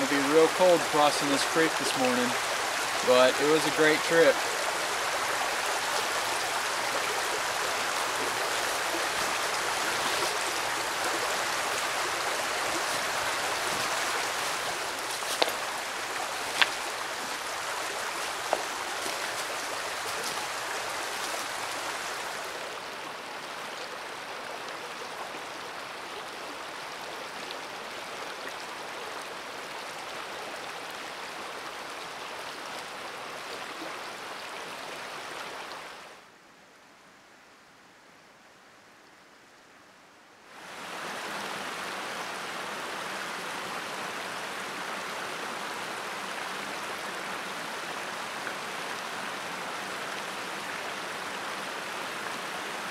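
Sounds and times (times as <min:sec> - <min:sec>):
creek water flowing: 0:00.0 - 0:36.3, 0:40.4 - 0:52.9.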